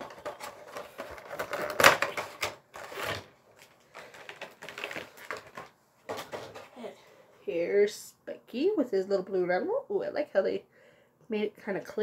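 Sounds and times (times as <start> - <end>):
cardboard box and plastic crackling: 0.0 - 6.8.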